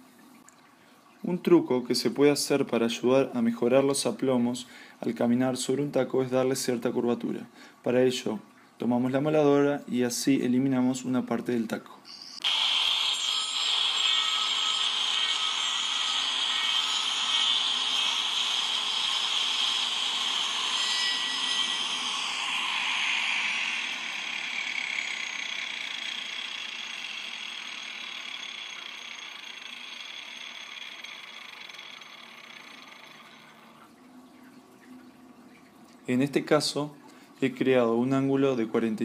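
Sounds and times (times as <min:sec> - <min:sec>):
angle grinder grinding wood: 0:12.4 - 0:33.8
grinder disc winding down: 0:12.4 - 0:33.8.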